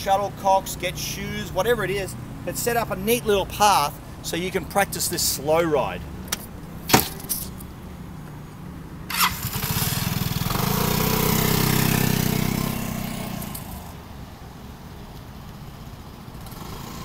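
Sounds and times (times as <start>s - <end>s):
scooter engine pulling away: 9.1s - 13.9s, 16.4s - 17.0s.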